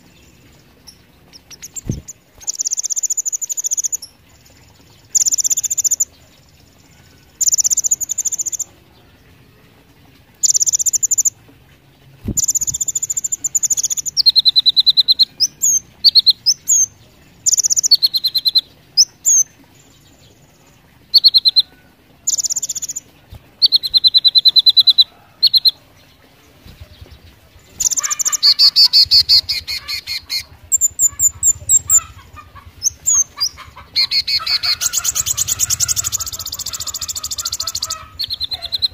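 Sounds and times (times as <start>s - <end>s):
bird trilling: 12.2s - 19.5s, 21.0s - 25.8s, 26.6s - 38.9s.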